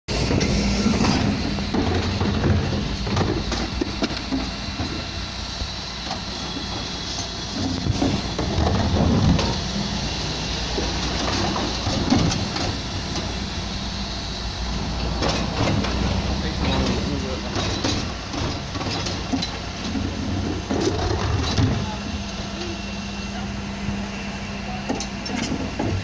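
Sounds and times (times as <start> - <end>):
wheelie bin rolling: 0.1 - 5.1
hydraulics working: 0.1 - 26.0
refuse truck running: 0.1 - 26.0
knocks and rattles: 16.7 - 21.8.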